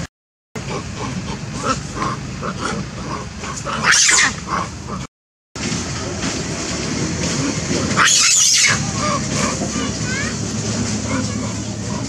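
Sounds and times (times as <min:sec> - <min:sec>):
macaques shrieking: 0:00.6 - 0:05.1, 0:07.3 - 0:10.3
low rumble: 0:00.6 - 0:12.0.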